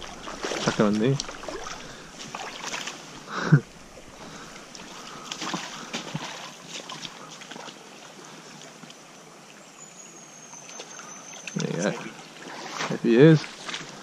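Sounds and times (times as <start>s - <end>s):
wading splashes and knocks: 0.0s - 3.2s, 3.8s - 7.9s, 10.6s - 14.0s
stream running over stones: 0.0s - 14.0s.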